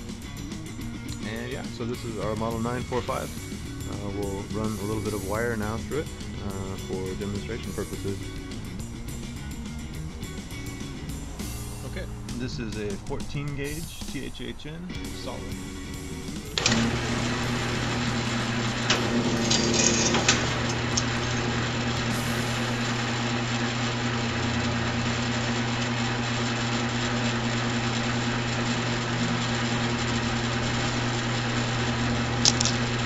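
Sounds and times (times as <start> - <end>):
wire stripping machine humming: 0.0 - 14.3, 15.0 - 33.0
wire clicking through rollers: 16.5 - 21.6.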